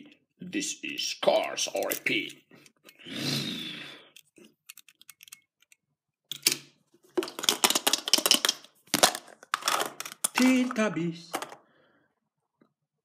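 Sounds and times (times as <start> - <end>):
hands handling plastic toys: 0.9 - 3.0, 4.1 - 11.7
plastic clicks and rattles: 4.2 - 11.6.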